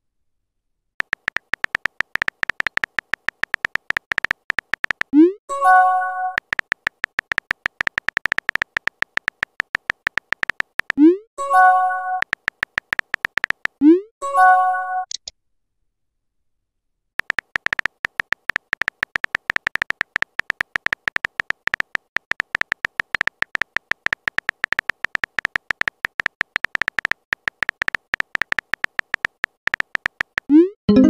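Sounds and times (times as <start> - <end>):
phone keyboard typing clicks: 1.0 - 5.3, 6.2 - 11.2, 12.1 - 13.8, 17.2 - 31.0.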